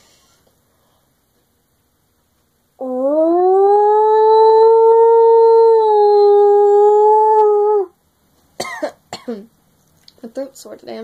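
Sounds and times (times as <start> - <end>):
person howling like a wolf: 2.8 - 8.0.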